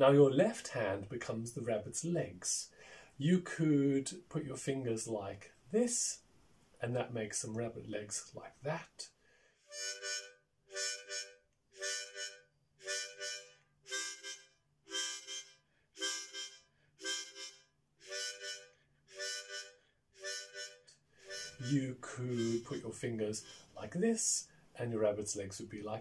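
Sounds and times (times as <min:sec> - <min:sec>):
harmonica puffing a chord: 0:09.6 - 0:23.8.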